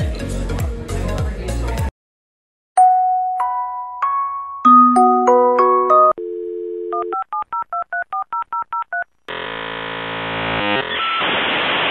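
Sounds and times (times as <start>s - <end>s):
chime notes: 2.8s - 6.2s
touch-tone dialing beeps: 5.7s - 9.0s
dial tone: 5.8s - 7.4s.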